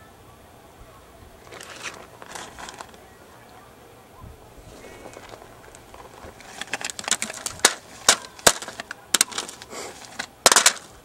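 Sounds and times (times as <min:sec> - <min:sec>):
irregular sharp clicks and knocks: 0:05.7 - 0:11.0.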